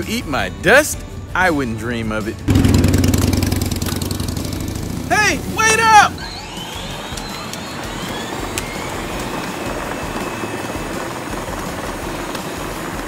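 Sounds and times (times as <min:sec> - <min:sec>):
tyres rolling on asphalt: 0:01.7 - 0:13.0
rising motor whine: 0:02.5 - 0:13.0
electric motors whirring: 0:06.2 - 0:12.9.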